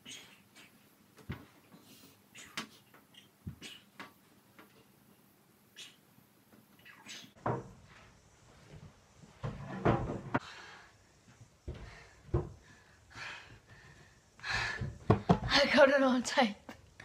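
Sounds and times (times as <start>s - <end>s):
knocks and thumps: 7.4s - 7.9s, 8.7s - 10.4s, 11.6s - 12.7s, 14.6s - 15.6s.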